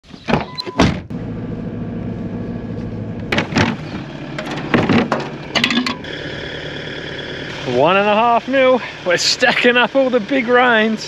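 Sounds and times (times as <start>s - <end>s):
engine hum: 0.7s - 11.0s
latches and lids clunking: 3.3s - 6.1s.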